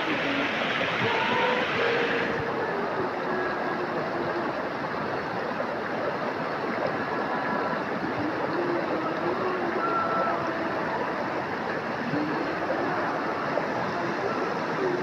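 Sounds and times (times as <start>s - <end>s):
river flowing: 0.0s - 15.0s.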